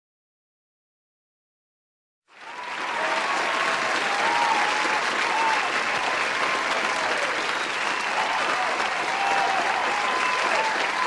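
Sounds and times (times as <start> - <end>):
audience applause: 2.3 - 11.0.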